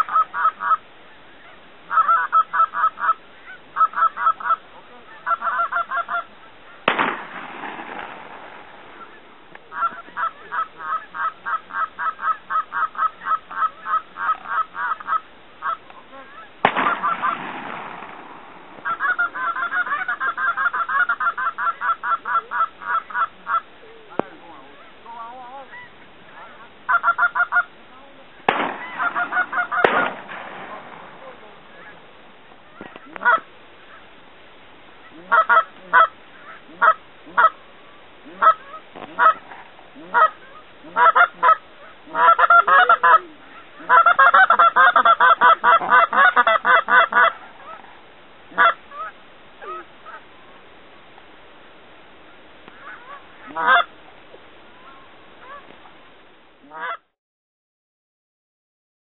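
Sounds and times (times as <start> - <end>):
geese honking: 0.0 - 0.8, 1.4 - 23.7, 24.4 - 27.8, 28.5 - 32.0, 32.7 - 34.1, 35.0 - 37.6, 38.2 - 47.9, 48.5 - 50.2, 52.7 - 53.9, 56.7 - 57.1
shotgun blasts with echo: 6.9 - 9.0, 16.6 - 18.8, 28.5 - 31.2.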